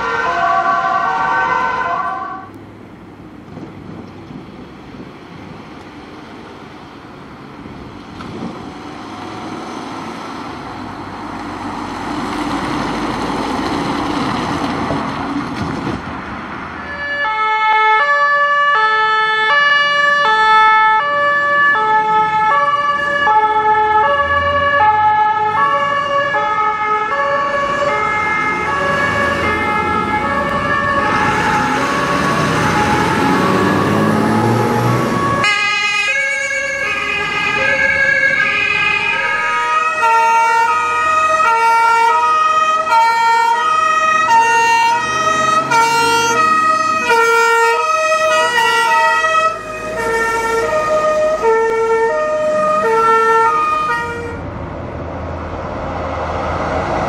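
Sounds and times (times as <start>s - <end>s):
fire truck two-tone siren: 0.0s - 2.6s, 16.8s - 54.6s
truck engine and road noise: 0.0s - 57.0s.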